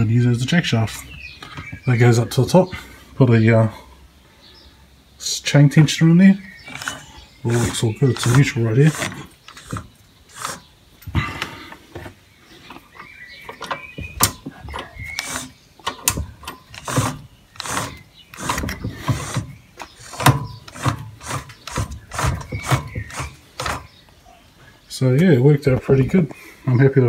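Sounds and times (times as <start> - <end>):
chain drive clicks and clanks: 6.7 - 10.7, 12.9 - 23.9
short squeaks: 12.8 - 23.9.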